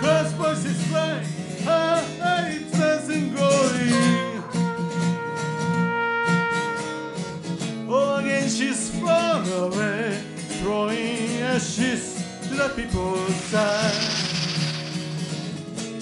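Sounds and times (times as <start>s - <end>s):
guitar accompaniment: 0.0s - 16.0s
cornet playing melody: 4.1s - 7.5s.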